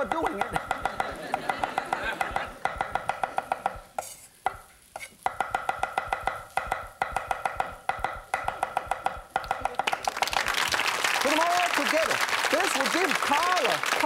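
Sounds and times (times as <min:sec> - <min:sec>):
cleaver chopping on wooden board: 0:00.2 - 0:04.6, 0:05.2 - 0:09.9.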